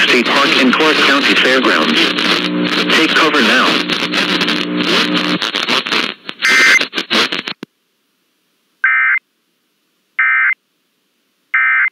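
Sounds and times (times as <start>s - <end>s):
radio static hissing and crackling: 0.0s - 7.7s
digital data tone bursts: 6.4s - 6.8s.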